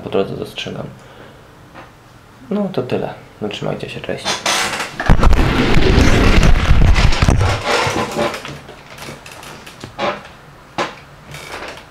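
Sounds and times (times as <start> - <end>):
camera handling rumble: 4.8 - 9.8.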